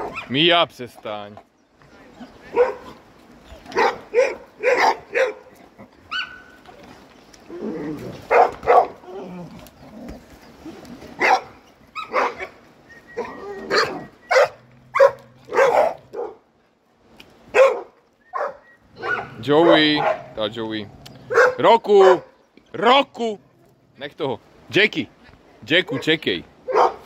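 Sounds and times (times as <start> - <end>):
dog barking: 2.5 - 3.0, 3.7 - 5.5, 8.3 - 9.0, 11.2 - 12.6, 13.7 - 16.4, 17.5 - 20.4, 21.3 - 22.4, 26.0 - 27.0.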